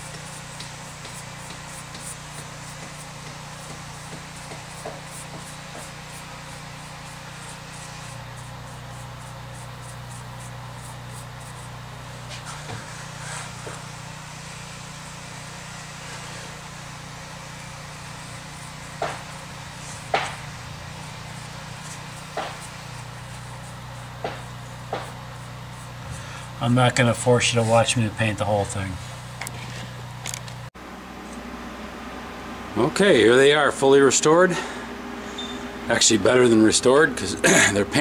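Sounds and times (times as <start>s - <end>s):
brush dabbing on metal: 0.0s - 30.0s
steady low hum: 0.0s - 38.0s.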